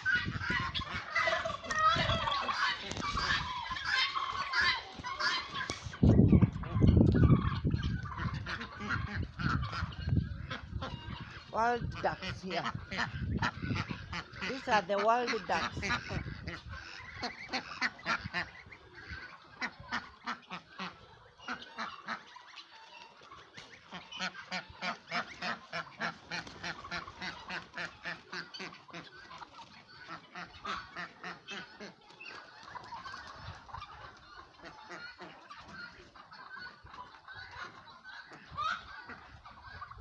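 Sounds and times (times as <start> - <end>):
fowl honking calls: 0.0 - 40.0.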